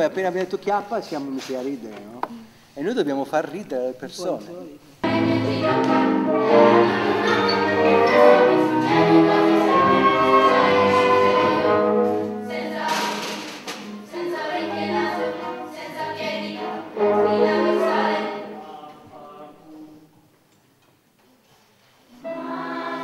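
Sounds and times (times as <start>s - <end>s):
children's orchestra playing: 5.0s - 18.6s, 22.2s - 23.0s
voices singing: 5.0s - 20.1s, 22.2s - 23.0s.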